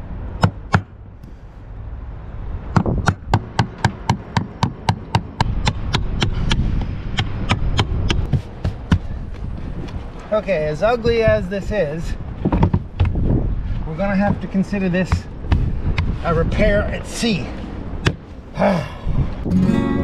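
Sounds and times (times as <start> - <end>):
hammer striking chisel into wood: 2.8 - 9.1.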